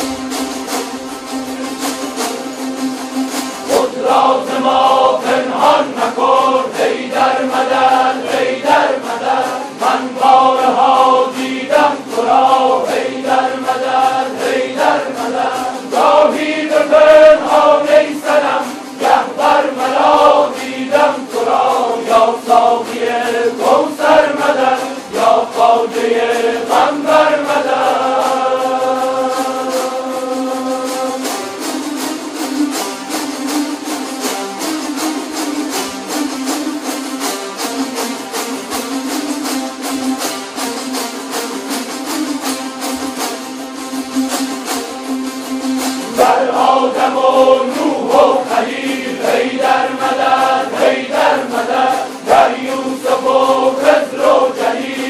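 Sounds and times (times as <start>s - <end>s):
lutes strummed in rhythm: 0.0s - 55.0s
men chanting in unison: 3.7s - 31.3s, 46.2s - 55.0s.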